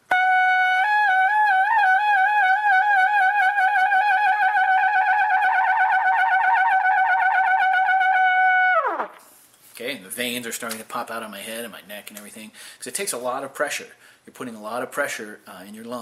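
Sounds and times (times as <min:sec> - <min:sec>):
trumpet lip trill: 0:00.0 - 0:09.2.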